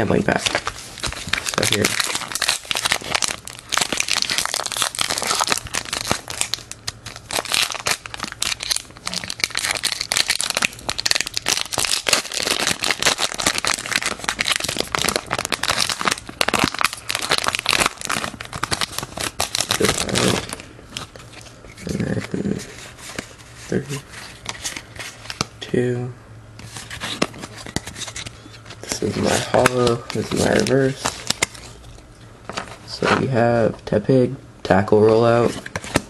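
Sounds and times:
foil wrappers crinkling: 0.0 - 25.5, 26.6 - 33.1
packs torn open: 0.3 - 22.6, 26.8 - 32.8.

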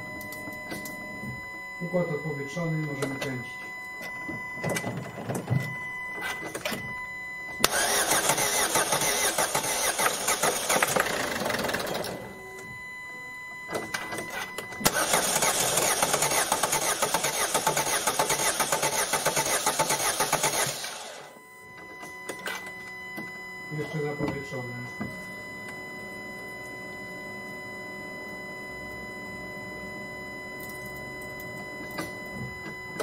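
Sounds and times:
diesel engine cranking: 7.6 - 12.1, 14.8 - 21.2.

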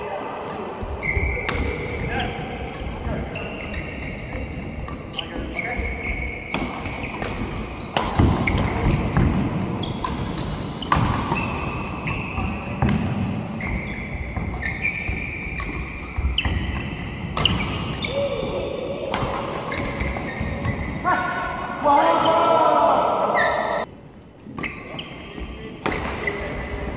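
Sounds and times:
rackets hitting shuttlecock: 0.5 - 18.2, 19.0 - 21.5, 25.8 - 26.8
shoes squeaking on court: 0.8 - 9.1, 9.8 - 18.2, 19.7 - 21.1, 24.6 - 26.8.

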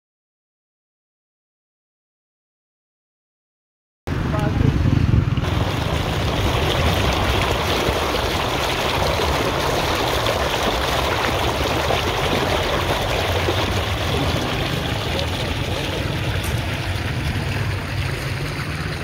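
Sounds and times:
water rushing and splashing: 4.1 - 19.0.

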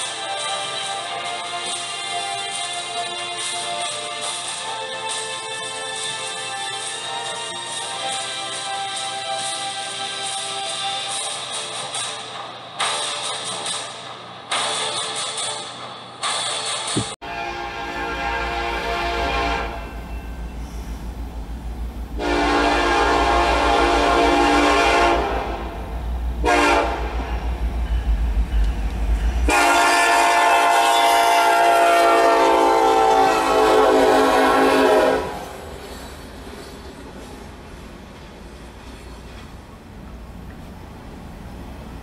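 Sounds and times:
train rumble: 0.0 - 42.0
locomotive air horn blasts: 17.2 - 20.1, 22.2 - 27.6, 29.4 - 35.8.

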